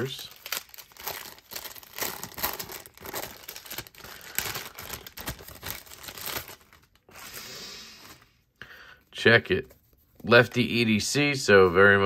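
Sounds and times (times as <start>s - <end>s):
bag crinkling and rustling: 0.0s - 7.4s.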